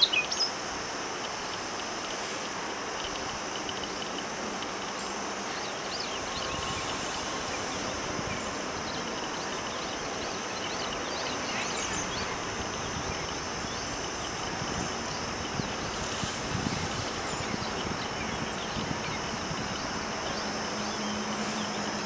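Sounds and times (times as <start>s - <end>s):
high bird chirps: 0.0s - 0.6s
steady background hiss: 0.0s - 22.0s.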